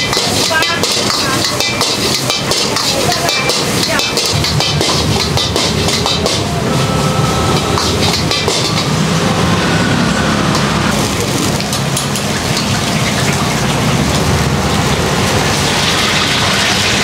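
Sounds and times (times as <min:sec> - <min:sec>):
metal ladle scraping a wok: 0:00.0 - 0:09.8
gas burner roaring: 0:00.0 - 0:17.0.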